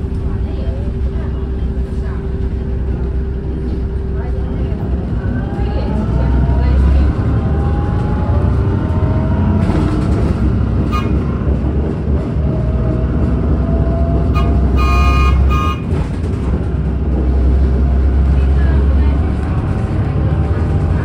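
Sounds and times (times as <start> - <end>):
car road and engine rumble: 0.0 - 21.0
vehicle horn beeps: 10.8 - 11.3, 14.3 - 16.0.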